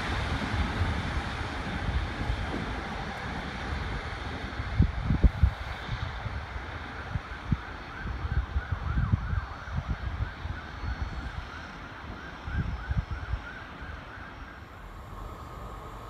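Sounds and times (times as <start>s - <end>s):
wind buffeting microphone: 0.0s - 16.0s
distant warbling siren: 6.7s - 16.0s.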